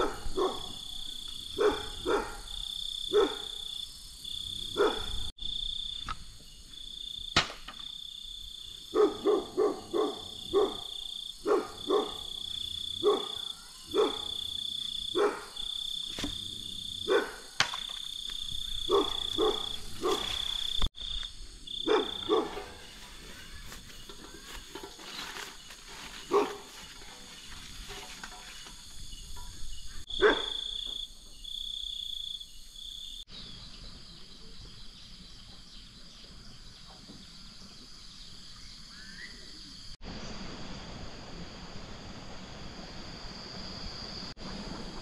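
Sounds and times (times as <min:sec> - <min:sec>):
frogs croaking: 0:00.0 - 0:35.7
insects trilling: 0:00.0 - 0:45.0.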